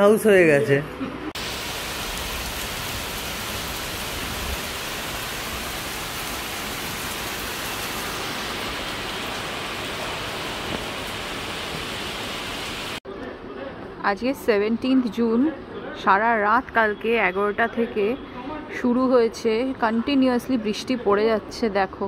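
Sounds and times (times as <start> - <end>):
heavy rain falling: 1.4 - 13.0.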